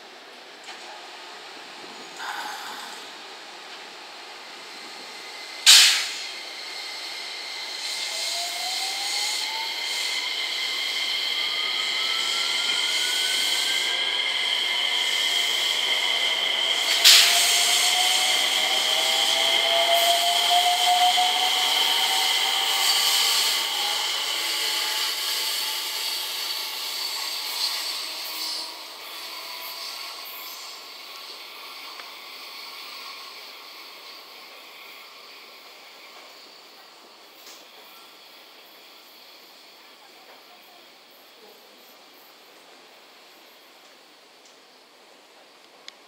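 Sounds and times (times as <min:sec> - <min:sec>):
electric train inverter whine: 0:00.0 - 0:46.0
train running noise: 0:00.0 - 0:46.0
short sharp loud bursts: 0:05.7 - 0:06.2.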